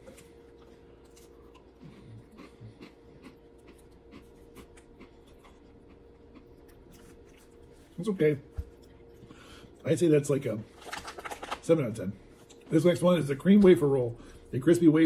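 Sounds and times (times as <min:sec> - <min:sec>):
person chewing crunchy cookie: 0:00.0 - 0:08.0.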